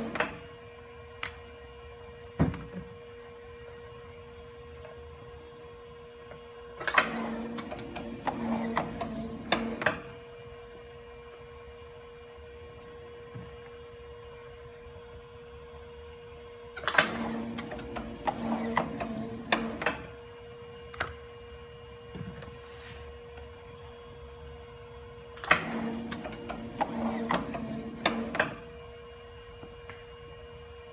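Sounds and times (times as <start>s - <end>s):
machine whirring and clatter: 6.8s - 10.1s, 16.8s - 20.2s, 25.4s - 28.8s
steady machine hum: 7.2s - 9.9s, 17.2s - 19.9s, 25.7s - 28.7s.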